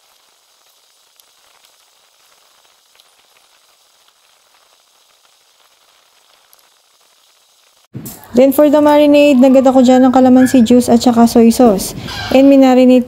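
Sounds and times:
faint steady hiss: 0.0s - 9.1s.

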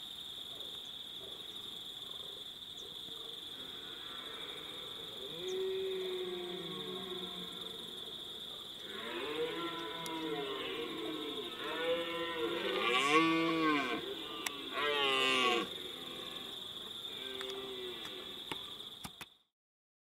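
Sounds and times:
deer stag roaring: 8.8s - 16.5s.

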